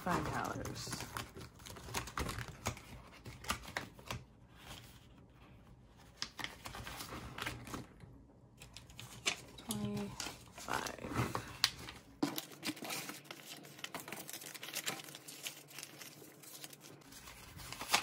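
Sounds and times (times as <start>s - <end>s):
plastic envelope clicking and crinkling: 0.0s - 4.9s, 6.0s - 7.9s, 8.6s - 18.0s
paper bills rustling: 8.8s - 18.0s.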